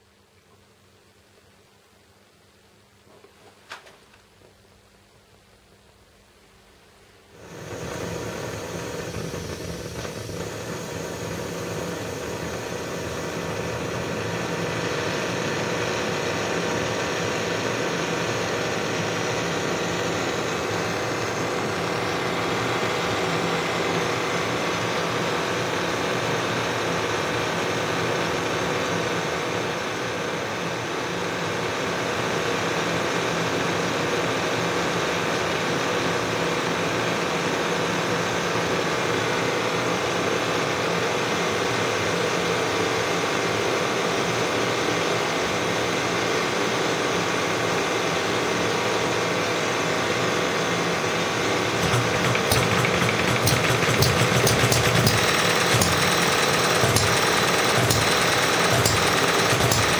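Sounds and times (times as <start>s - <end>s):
blowlamp flame hissing: 7.4s - 25.8s.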